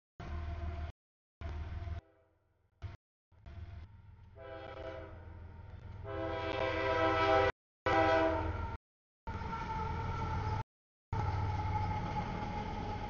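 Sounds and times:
train rumble: 2.8s - 13.0s
locomotive air horn: 4.4s - 5.3s, 6.0s - 8.7s.

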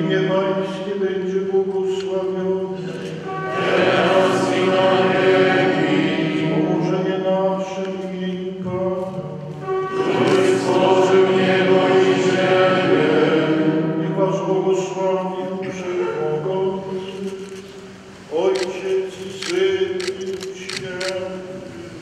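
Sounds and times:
voices singing a chant: 2.4s - 8.8s, 9.8s - 17.2s.

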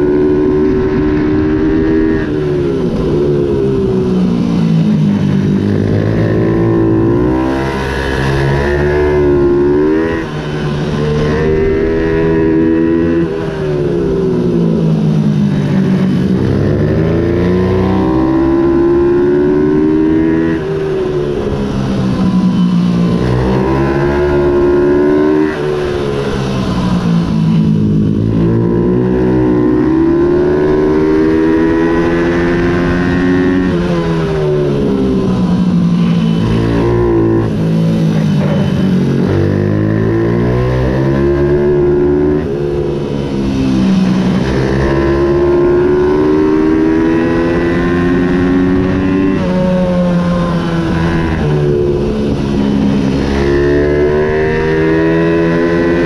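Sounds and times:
minibike engine revving: 15.6s - 56.0s.

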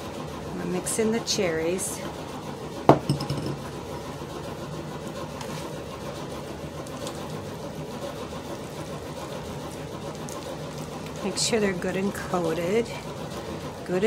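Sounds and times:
steady mechanical hum: 0.0s - 14.0s
spoon knocking glass bowl: 2.9s - 3.7s.

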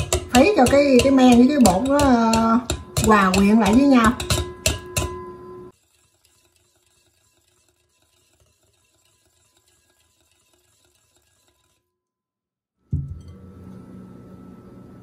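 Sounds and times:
wire whisk beating batter: 0.0s - 11.9s.

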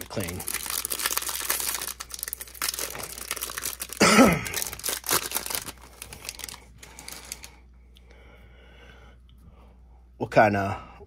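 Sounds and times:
wrapper crinkling and tearing: 0.0s - 7.6s.

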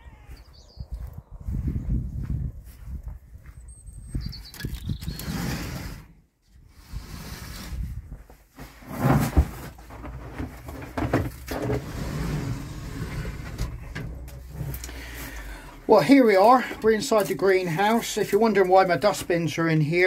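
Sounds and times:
footsteps: 0.3s - 3.7s
microphone rumble: 0.8s - 3.2s, 9.0s - 15.9s.

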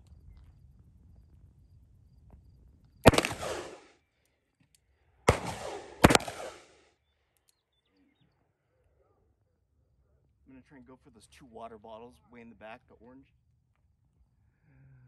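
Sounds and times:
revolver gunshots with echo: 3.0s - 3.9s, 5.3s - 6.8s.

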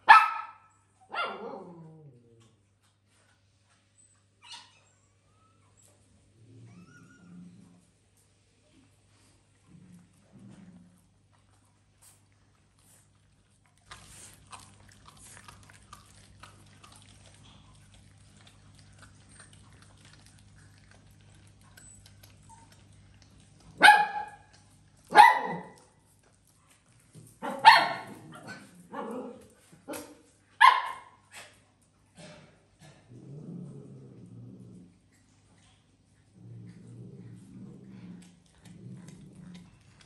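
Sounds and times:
small dog barking: 0.0s - 1.7s, 23.8s - 24.5s, 25.1s - 25.8s, 27.4s - 29.3s, 29.9s - 31.2s
cats chewing meat: 9.1s - 28.8s, 34.0s - 40.0s.

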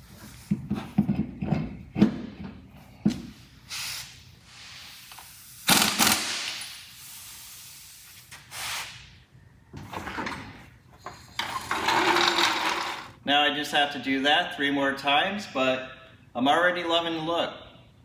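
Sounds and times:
air impact wrench: 3.7s - 9.1s, 11.0s - 13.1s
floor jack metal clatter: 11.4s - 13.1s.

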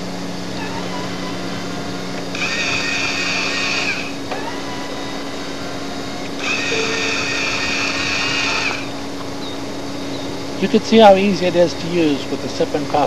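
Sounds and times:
electric motor whine: 0.0s - 13.0s
steady low hum: 0.0s - 13.0s.

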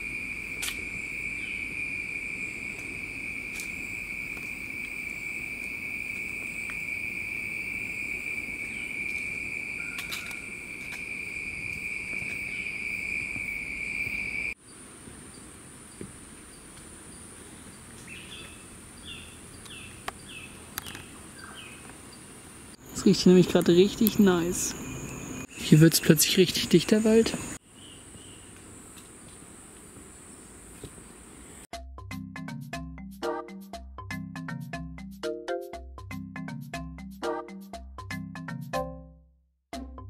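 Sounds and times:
faint high insect tone: 0.0s - 31.7s
insect drone: 0.0s - 31.7s.

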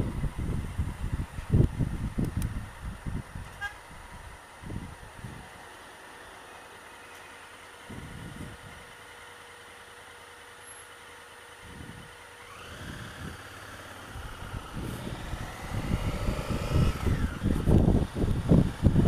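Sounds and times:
wind buffeting microphone: 0.0s - 5.5s, 11.7s - 19.0s
motorcycle engine: 11.5s - 19.0s.

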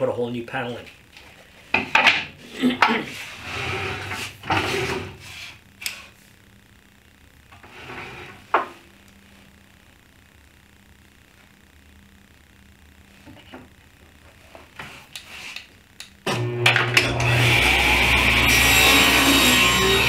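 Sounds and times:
wood sliding on wood: 2.9s - 5.5s.

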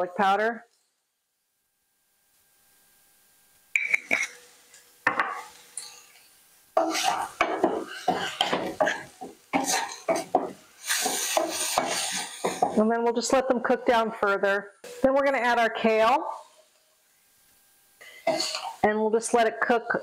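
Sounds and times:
spatula scraping frying pan: 3.8s - 12.9s, 18.0s - 18.8s.

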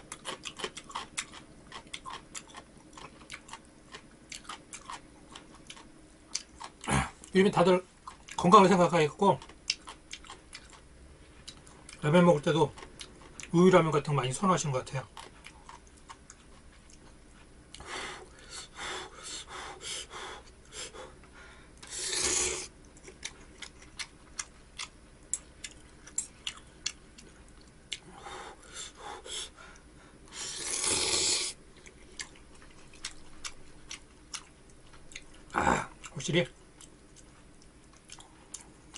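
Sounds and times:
chewing: 0.0s - 7.4s, 8.0s - 8.5s, 9.4s - 12.0s, 12.7s - 13.6s, 15.1s - 17.9s, 22.8s - 28.2s, 31.7s - 36.2s, 36.8s - 38.9s
person slurping noodles: 21.9s - 22.7s, 30.4s - 31.6s.

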